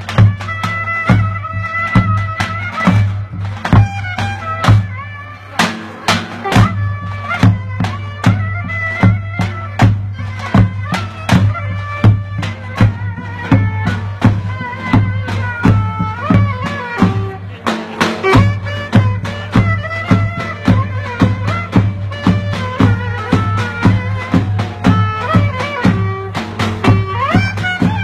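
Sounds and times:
ornamented wind instrument melody: 0.0 - 28.0.

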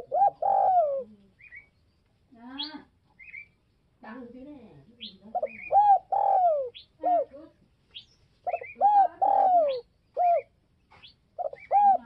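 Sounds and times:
dove cooing: 0.0 - 1.4, 5.0 - 7.5, 8.4 - 10.5, 11.4 - 12.0.

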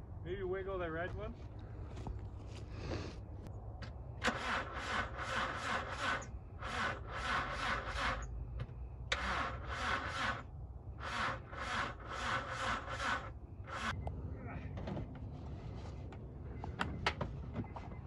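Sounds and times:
hand tool rasping strokes: 11.0 - 13.9.

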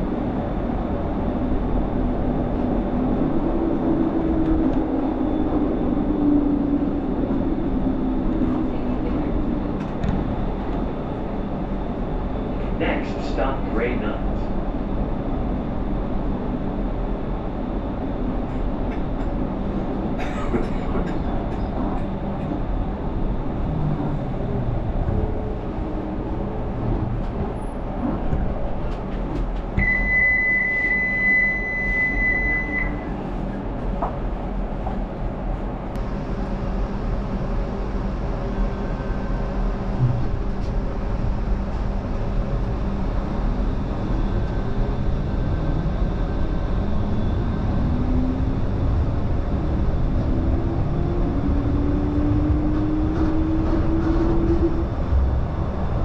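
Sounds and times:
tram rolling rumble: 0.0 - 56.0
steady high beep: 29.8 - 33.0.

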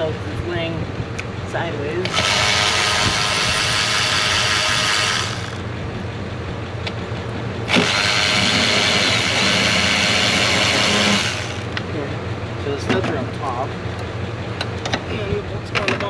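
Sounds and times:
power tool backing out bolts: 2.0 - 5.6, 7.7 - 11.8.

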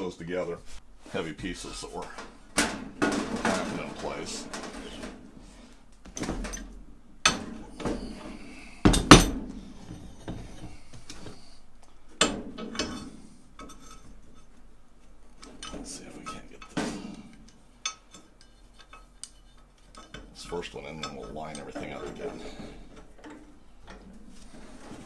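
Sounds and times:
steel clamps clanking and knocking: 2.1 - 5.2, 6.1 - 8.2, 8.9 - 10.8, 12.2 - 14.5, 15.4 - 25.0.

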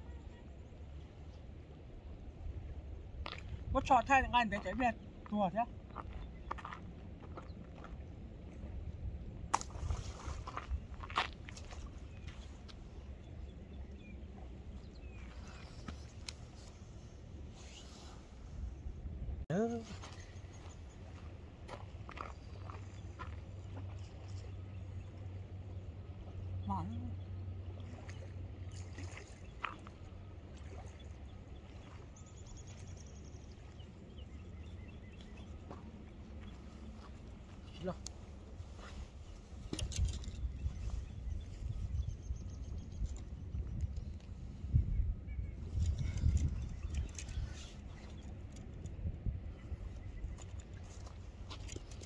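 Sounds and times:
low wind rumble: 0.0 - 52.0
flowing river water: 20.8 - 39.7.

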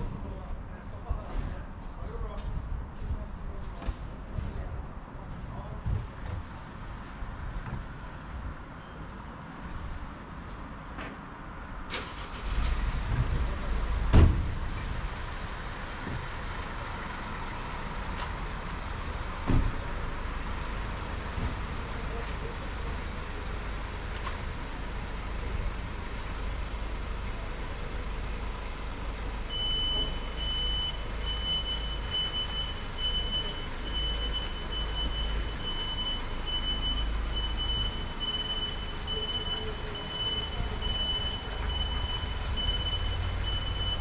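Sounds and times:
reversing beeper: 29.5 - 44.0.

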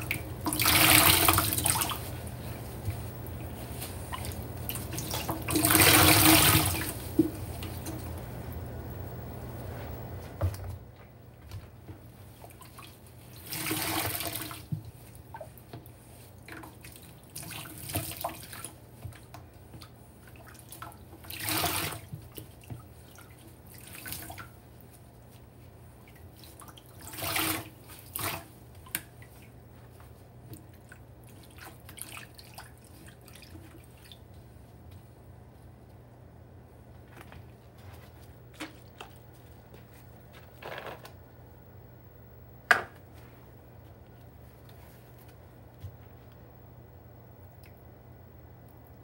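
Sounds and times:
water gushing from squeezed sponge: 0.0 - 8.0, 12.3 - 18.8, 20.2 - 24.6, 26.1 - 29.6.

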